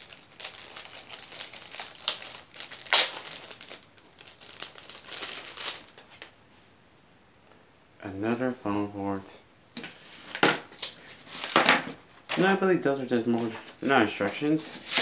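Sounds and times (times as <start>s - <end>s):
plastic bags crinkling: 0.0s - 6.1s.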